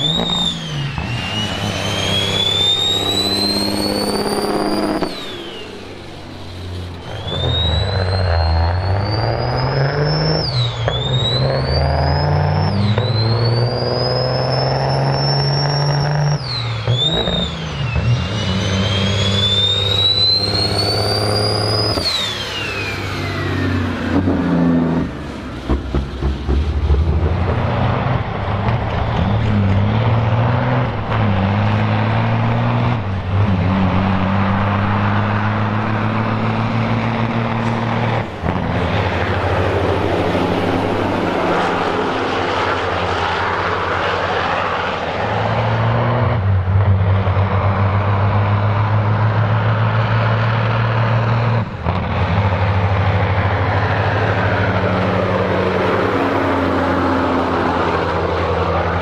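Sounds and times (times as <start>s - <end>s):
high turbo whistle: 0.0s - 25.3s, 37.2s - 46.6s
diesel truck accelerating: 0.0s - 59.0s.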